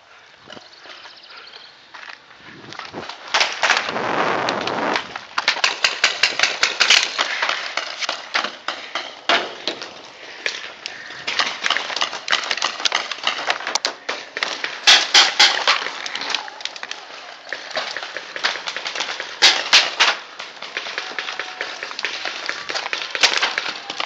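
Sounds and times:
paintball markers firing: 17.5 - 24.0.

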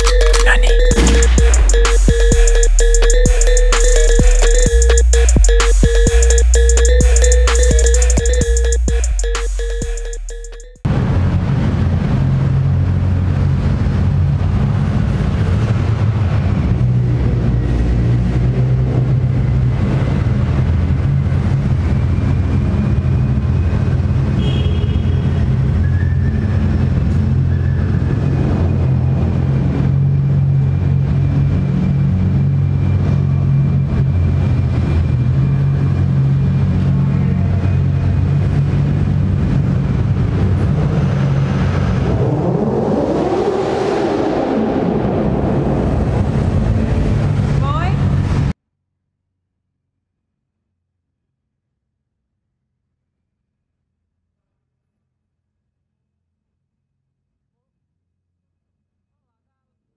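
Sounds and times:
car engines rumbling at low revs: 10.9 - 24.4, 25.4 - 48.5.

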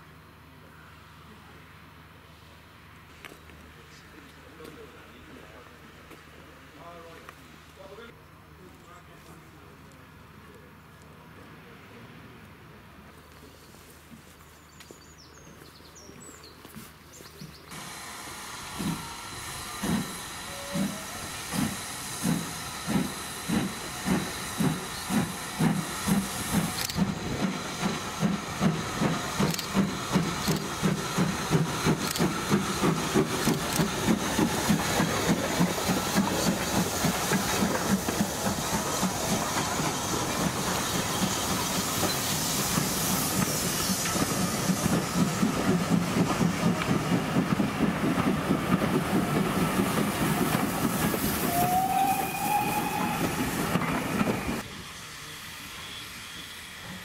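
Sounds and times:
train coaches rolling past: 17.4 - 57.0
steam hissing: 17.7 - 57.0
steam locomotive exhaust beats: 17.7 - 57.0.

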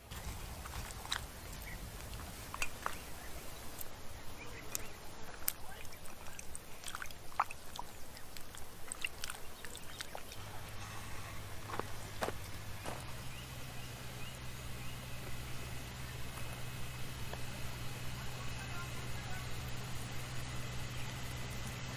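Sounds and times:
hands squelching wet fat: 0.7 - 10.8
wet clicks and drips: 1.0 - 10.5.

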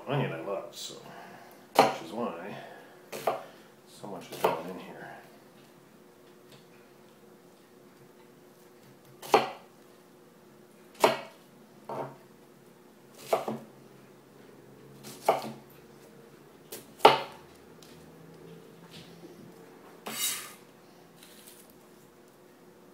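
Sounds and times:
knife chopping on plastic board: 1.7 - 2.0, 3.1 - 3.4, 9.2 - 9.6, 11.0 - 12.2, 13.2 - 13.7, 15.0 - 15.6, 16.7 - 17.4.

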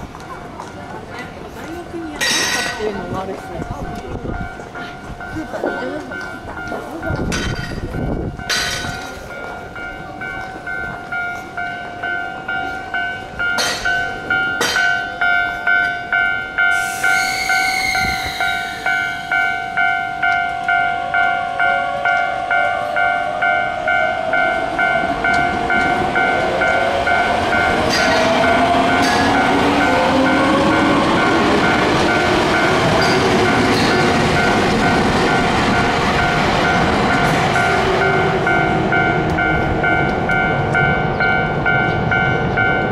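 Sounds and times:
level-crossing warning bell: 0.0 - 42.9
train brakes squealing: 16.6 - 20.0.

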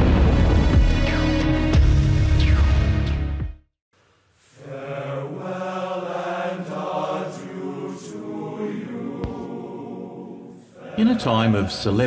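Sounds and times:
choir singing chant: 4.6 - 12.0.

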